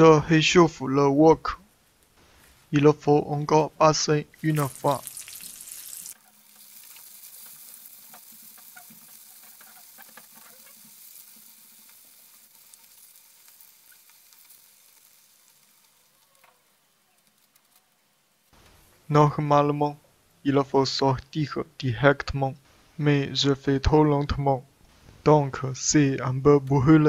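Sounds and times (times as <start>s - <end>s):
fish sizzling in hot oil: 4.4s - 16.5s.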